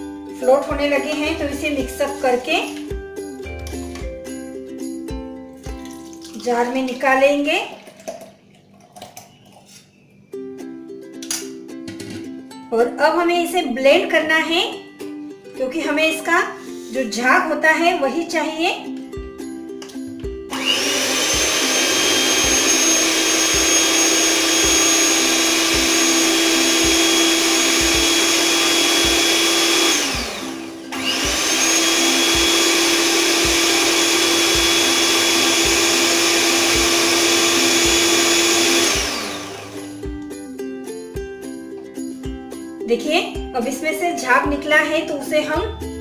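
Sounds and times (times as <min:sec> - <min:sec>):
electric hand mixer whining: 0:20.5 - 0:40.1.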